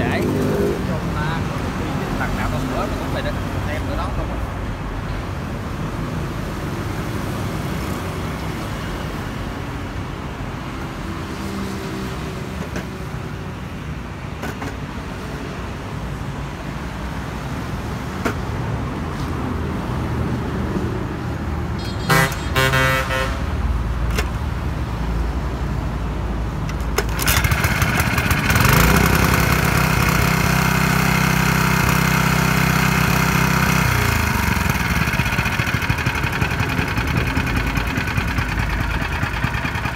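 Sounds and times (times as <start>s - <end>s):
engine pull-start strokes: 26.7s - 39.9s
small gasoline engine running: 26.7s - 39.9s.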